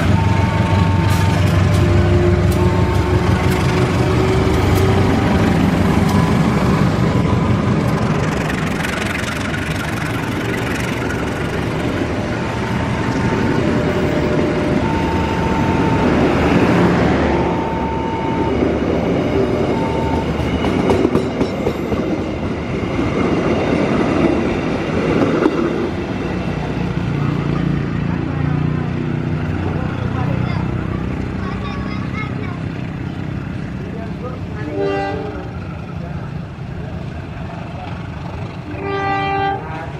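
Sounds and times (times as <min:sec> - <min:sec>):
locomotive passing: 0:00.0 - 0:39.9
train wheels rumbling on rails: 0:00.0 - 0:39.9.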